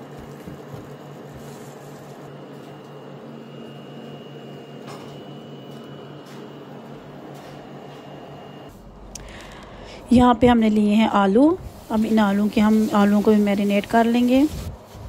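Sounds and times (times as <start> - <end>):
appliance motor hum: 0.0 - 15.0.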